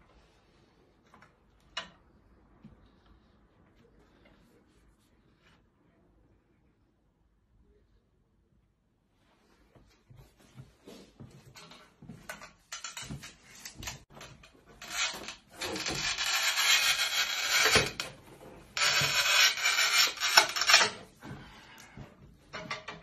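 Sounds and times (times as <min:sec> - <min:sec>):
tile cutter scraping ceramic tile: 0:14.8 - 0:18.2, 0:18.8 - 0:21.1.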